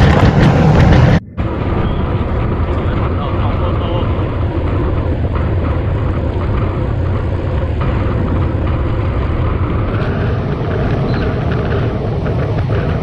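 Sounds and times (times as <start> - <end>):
wind roar on microphone: 0.0 - 13.0.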